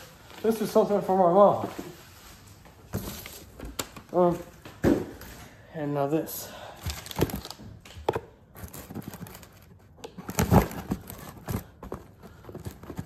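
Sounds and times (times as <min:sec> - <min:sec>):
packaging rustling: 0:06.8 - 0:13.0.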